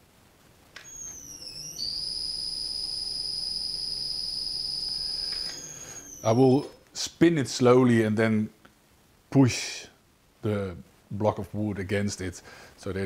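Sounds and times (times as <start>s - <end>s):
high-pitched inverter whine: 0.8s - 6.9s
faint motor hum: 0.8s - 7.0s.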